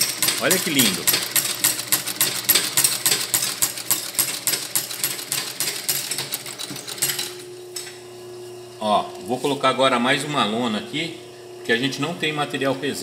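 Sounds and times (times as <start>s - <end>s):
sewing machine clatter: 0.0s - 7.3s.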